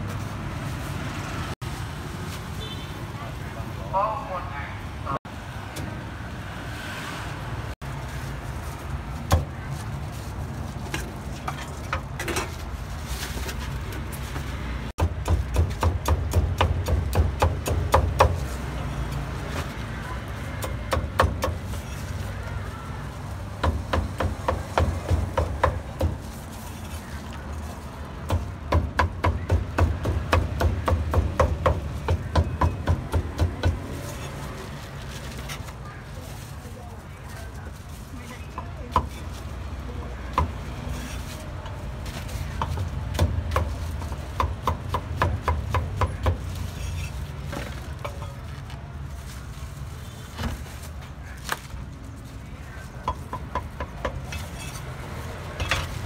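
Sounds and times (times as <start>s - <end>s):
cleaver chopping meat on wood: 15.0s - 18.4s, 28.2s - 33.9s.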